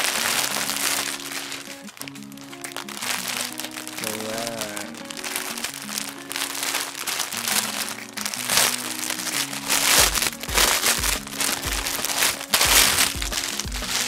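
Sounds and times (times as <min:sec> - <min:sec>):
plastic bag crinkling: 0:00.0 - 0:14.0
background music with low beat: 0:07.5 - 0:14.0.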